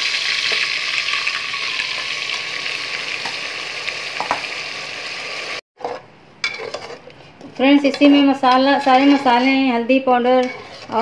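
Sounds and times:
paste sizzling in hot oil: 0:00.0 - 0:05.6.

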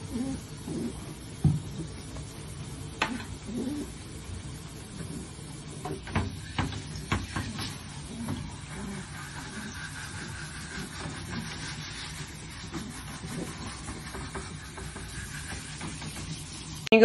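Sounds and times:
knocks and clicks against bathtub: 0:05.8 - 0:08.6.

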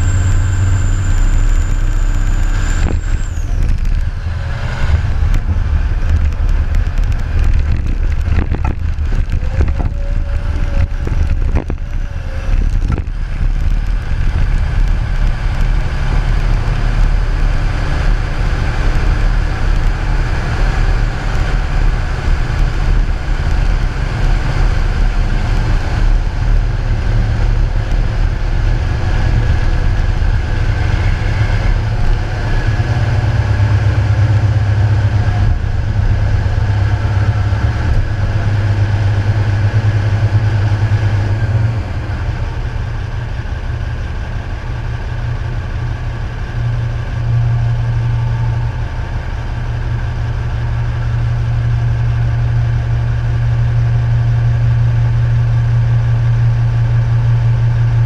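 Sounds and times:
diesel engine rumbling: 0:00.0 - 0:58.0
rattles and knocks: 0:04.9 - 0:17.0.

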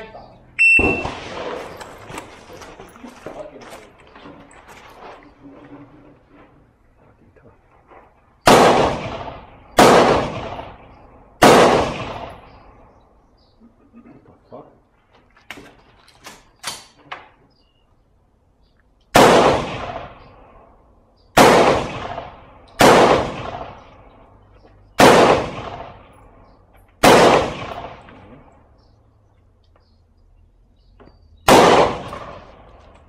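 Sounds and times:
rifle shots echoing: 0:00.6 - 0:03.0, 0:08.4 - 0:13.1, 0:19.1 - 0:28.6, 0:31.4 - 0:33.0.

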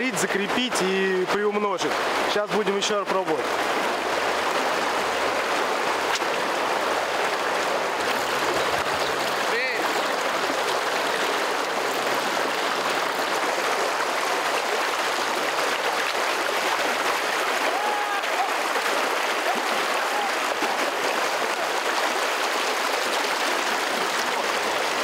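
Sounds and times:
river water rushing: 0:00.0 - 0:25.0.

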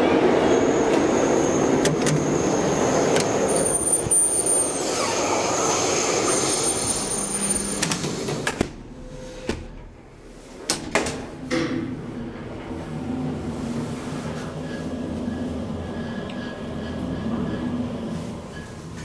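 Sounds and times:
busy platform noise: 0:00.0 - 0:19.0
door shutting with clicks: 0:10.7 - 0:11.9.

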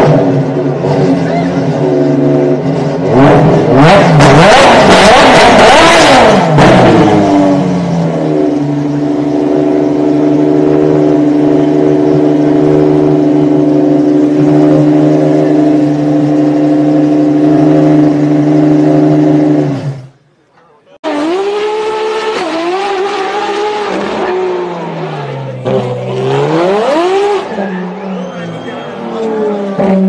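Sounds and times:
car engine revving and idling: 0:00.0 - 0:30.0.

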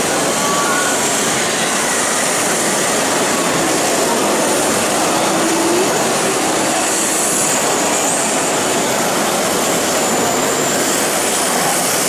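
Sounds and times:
high motor whine: 0:00.0 - 0:12.0
steady wash of noise: 0:00.0 - 0:12.0.

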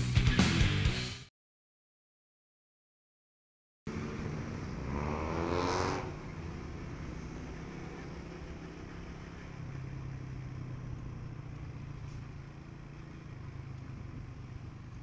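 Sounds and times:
motorcycle engine running: 0:03.9 - 0:15.0.

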